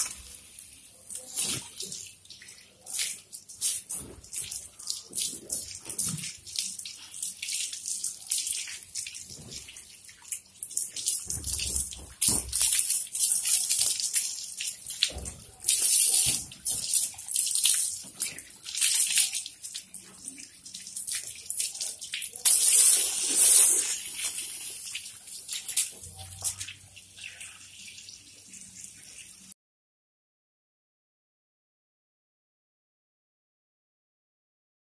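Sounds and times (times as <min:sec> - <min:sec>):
hose water spraying and splashing: 0:00.0 - 0:20.3, 0:20.9 - 0:27.6.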